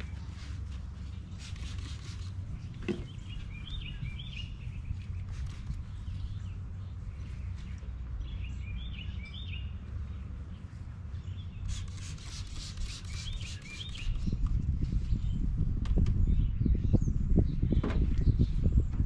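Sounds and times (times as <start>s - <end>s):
gloved hand rubbing painted door: 0.0s - 7.7s, 11.6s - 14.3s
steady low rumble: 0.0s - 12.6s, 14.0s - 19.0s
small birds chirping: 0.0s - 18.9s.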